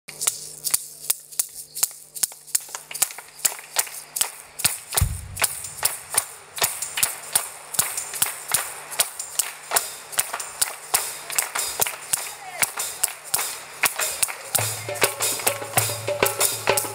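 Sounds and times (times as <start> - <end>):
people clapping in rhythm: 1.5 - 16.9
low thump: 5.0 - 6.1.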